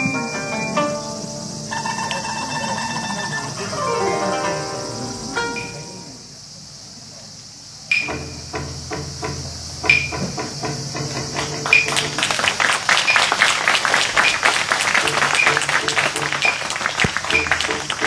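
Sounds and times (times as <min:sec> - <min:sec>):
wooden clappers striking: 0:09.8 - 0:12.3, 0:14.2 - 0:18.0.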